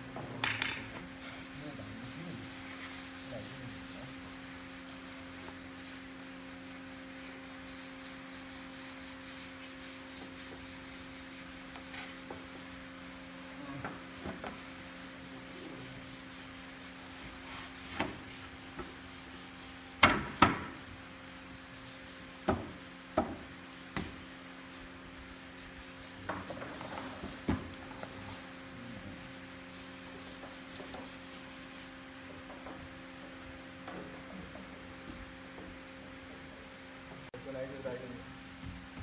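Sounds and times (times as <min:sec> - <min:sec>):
low hum of workshop machinery: 0:00.0 - 0:39.0.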